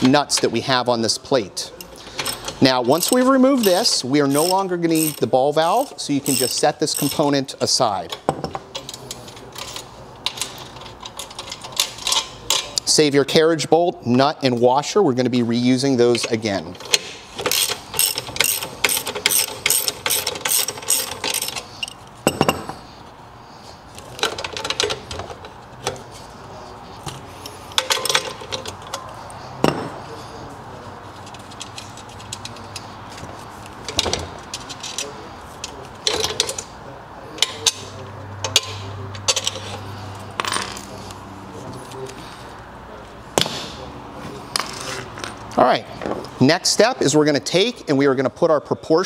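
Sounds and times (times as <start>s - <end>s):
metal parts and tools clinking: 1.7s - 12.8s, 16.2s - 22.9s, 24.0s - 26.2s, 27.0s - 30.0s, 37.4s - 41.0s
socket ratchet clicking: 2.2s - 5.3s, 6.2s - 7.2s, 17.4s - 22.0s.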